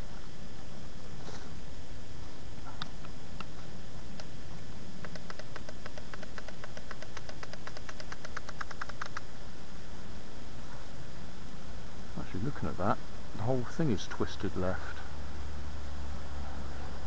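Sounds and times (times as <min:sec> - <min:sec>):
small plastic clicks: 0:05.0 - 0:09.3.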